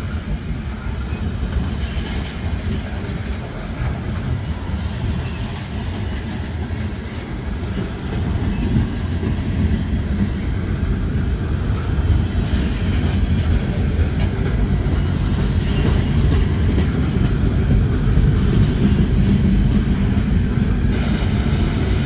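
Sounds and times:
freight train wheels rumbling: 0:00.0 - 0:22.0.

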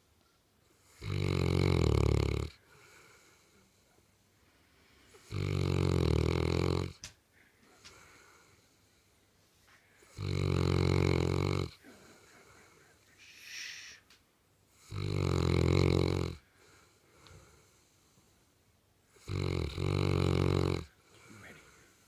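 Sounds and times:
dog snoring: 0:00.8 - 0:03.7, 0:05.1 - 0:07.0, 0:10.0 - 0:12.3, 0:14.7 - 0:17.9, 0:19.1 - 0:21.8
soft hissing breath: 0:02.5 - 0:05.5, 0:07.3 - 0:10.3, 0:11.7 - 0:15.0, 0:16.4 - 0:19.4, 0:20.9 - 0:22.0.

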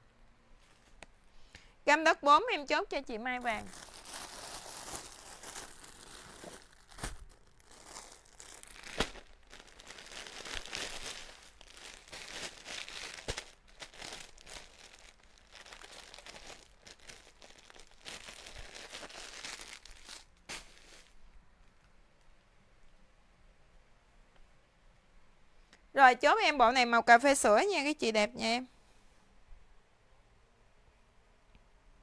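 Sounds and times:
plastic bags crinkling: 0:03.4 - 0:21.2.

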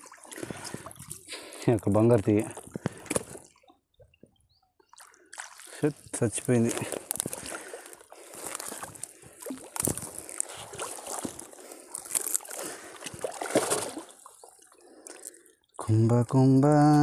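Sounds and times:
water sloshing and splashing: 0:00.0 - 0:15.8
wet net hauled over boat side: 0:04.9 - 0:16.9.

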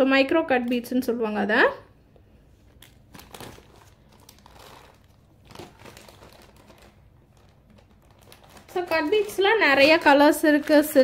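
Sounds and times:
plastic bags crinkling: 0:02.6 - 0:11.0.

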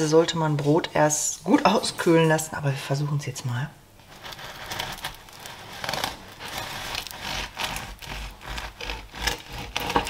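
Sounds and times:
knife sawing through crust: 0:04.1 - 0:10.0.

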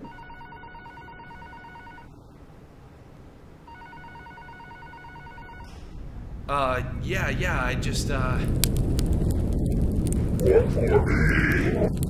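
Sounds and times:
telephone ringing: 0:00.0 - 0:02.1, 0:03.7 - 0:05.7.

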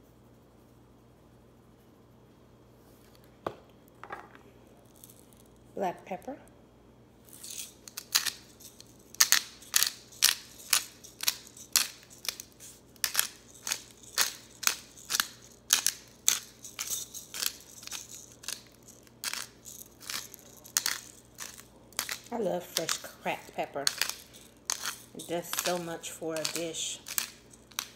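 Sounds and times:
pepper grinder crunching clicks: 0:07.3 - 0:27.9.

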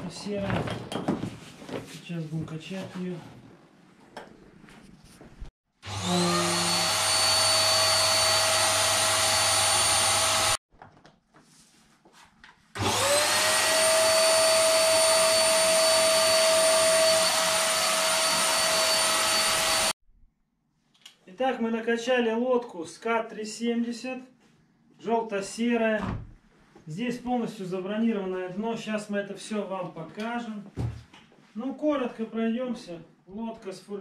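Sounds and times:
electric air pump whining: 0:05.8 - 0:10.6, 0:12.8 - 0:19.9.

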